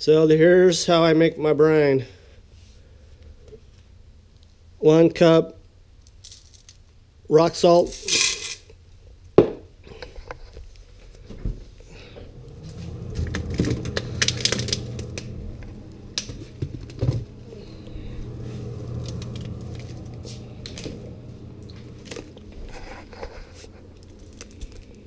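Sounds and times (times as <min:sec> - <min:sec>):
freezer humming: 0:11.2 - 0:25.0
plastic packages crinkling: 0:13.2 - 0:15.2, 0:23.6 - 0:25.0.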